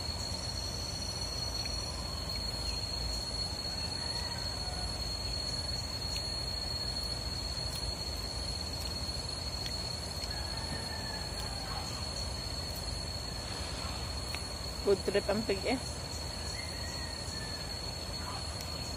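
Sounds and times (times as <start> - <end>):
constant high-pitched tone: 0.0 - 18.9.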